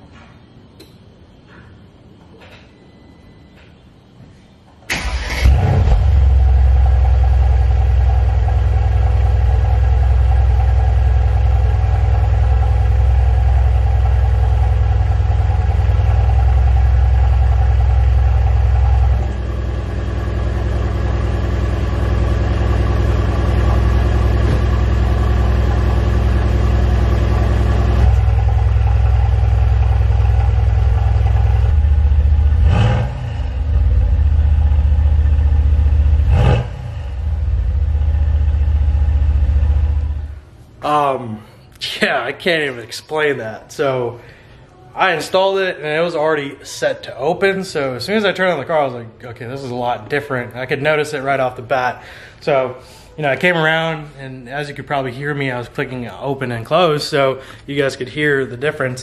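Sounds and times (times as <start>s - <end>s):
car engine idling: 4.9s - 40.5s
car engine starting: 4.9s - 40.5s.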